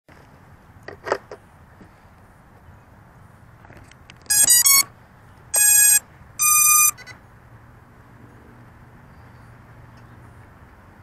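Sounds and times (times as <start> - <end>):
quadcopter motor start-up beeps: 4.3 - 4.9, 5.6 - 7.0.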